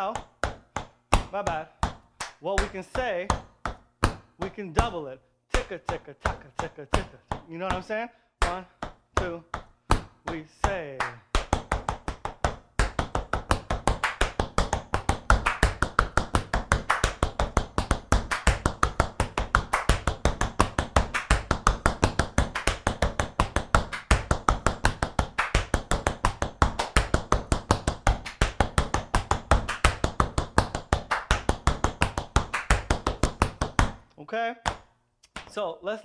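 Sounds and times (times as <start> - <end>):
tap shoes on wooden floor: 0.0 - 5.0, 5.6 - 34.1, 34.7 - 35.6.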